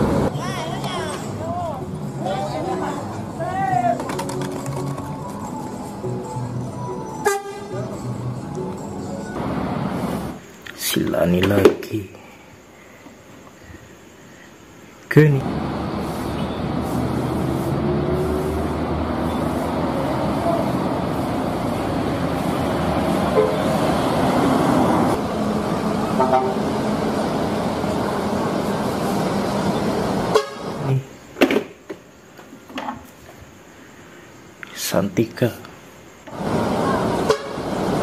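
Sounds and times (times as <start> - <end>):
road traffic: 0.0 - 38.0
vehicle horn tooting: 7.2 - 7.9, 26.1 - 26.7, 30.3 - 31.0, 37.2 - 37.7
coach driving past: 15.2 - 31.2.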